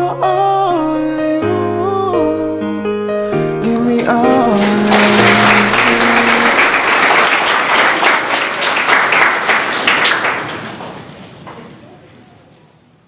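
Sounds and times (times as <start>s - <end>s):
song: 0.0s - 7.5s
audience applauding: 4.4s - 11.7s.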